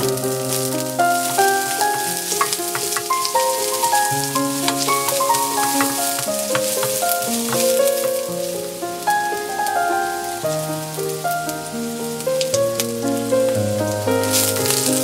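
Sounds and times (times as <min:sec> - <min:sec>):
spatula ticking against pan: 0:04.7 - 0:07.8.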